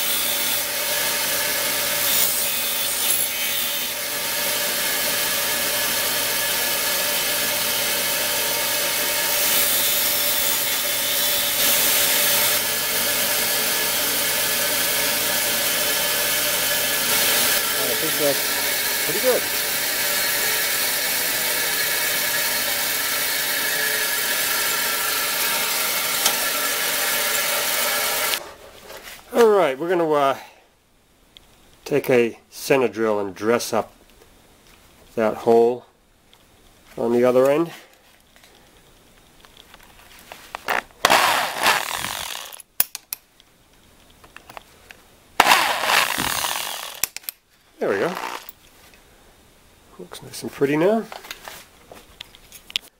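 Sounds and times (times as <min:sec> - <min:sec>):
electric drill running: 0:00.0 - 0:28.4, 0:41.0 - 0:42.6, 0:45.4 - 0:47.2, 0:48.0 - 0:48.6
bench grinder whirring: 0:00.0 - 0:28.5, 0:40.7 - 0:42.6, 0:45.4 - 0:47.2, 0:47.8 - 0:48.6.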